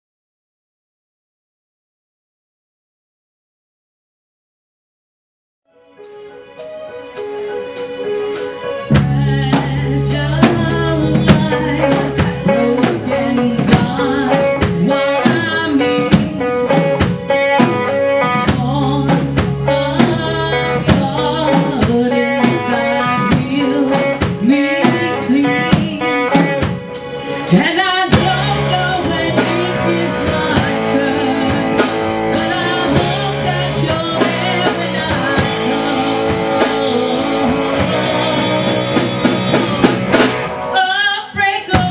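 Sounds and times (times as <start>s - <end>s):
live rock band playing: 5.8s - 41.9s
woman singing: 8.9s - 39.9s, 40.7s - 41.9s.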